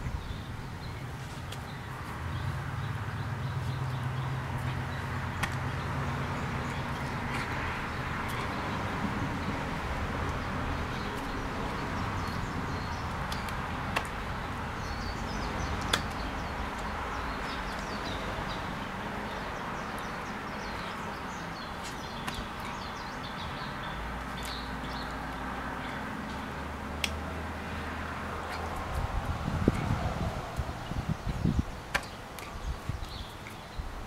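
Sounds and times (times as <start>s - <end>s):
small birds chirping: 0.0s - 34.0s.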